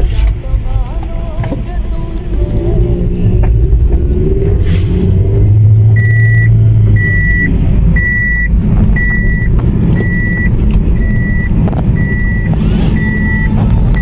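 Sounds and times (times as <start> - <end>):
engine and road rumble: 0.0 - 14.0
car warning chime beeping: 5.4 - 14.0.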